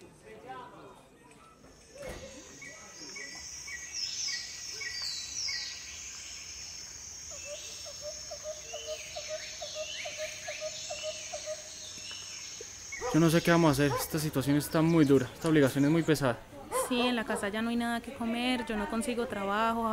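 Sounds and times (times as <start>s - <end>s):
birds whistling: 1.8s - 16.1s
high insect drone: 2.3s - 13.7s.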